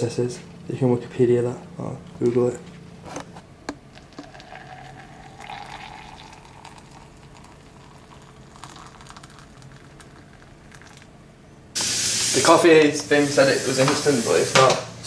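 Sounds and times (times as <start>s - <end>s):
hot water pouring into mug: 4.0s - 11.0s, 11.8s - 14.8s.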